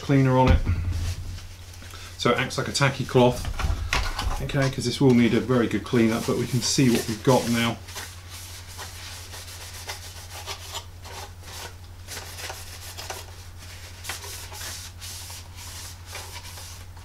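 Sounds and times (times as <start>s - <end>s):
steady low hum: 0.0s - 8.7s
towel rubbing plastic: 4.4s - 17.0s.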